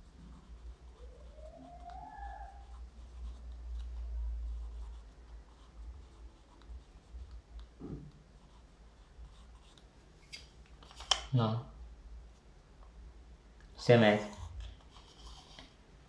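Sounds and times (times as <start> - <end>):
pencil scratching on paper: 0.0 - 9.9.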